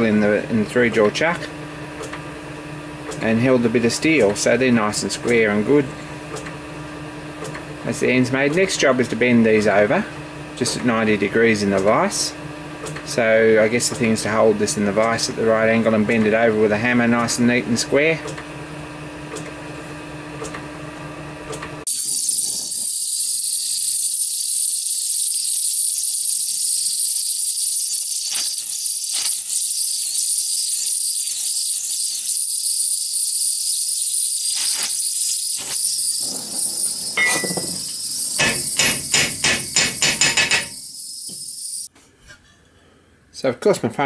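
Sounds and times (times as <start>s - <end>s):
gas torch flame hissing: 21.9s - 41.9s.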